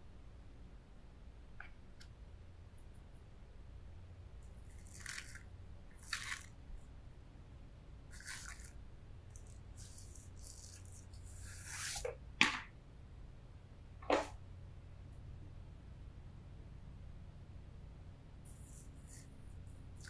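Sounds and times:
plastic wrap crackling: 4.8 - 6.5, 8.1 - 8.8.

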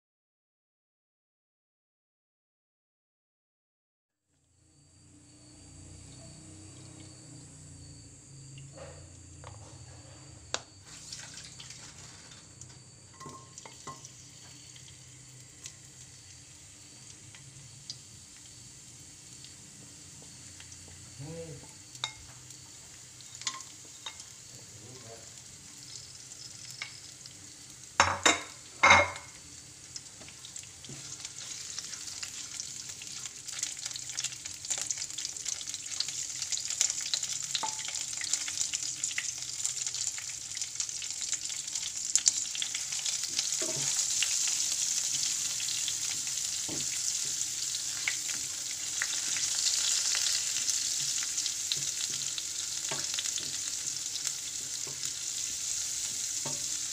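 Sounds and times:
spices sizzling in oil: 4.5 - 9.8, 10.5 - 56.9
spatula stirring in wok: 30.2 - 33.9, 42.3 - 56.9.

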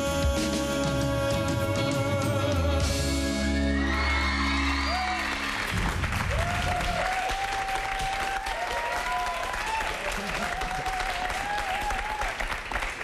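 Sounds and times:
pop ballad duet with band: 0.0 - 4.1
audience applauding and cheering: 3.3 - 13.0.

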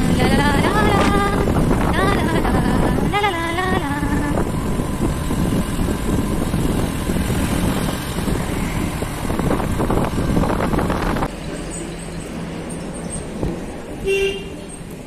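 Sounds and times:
wind buffeting microphone: 0.0 - 11.3
road noise: 0.0 - 15.0
vehicle engine: 0.0 - 15.0.

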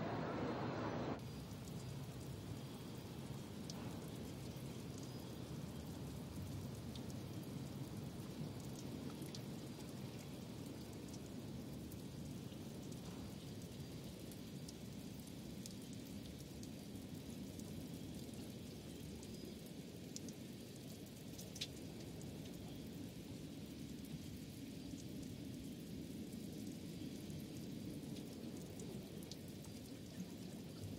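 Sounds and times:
low rumbling ambient noise: 0.0 - 13.0
faint ticks: 1.5 - 24.2.

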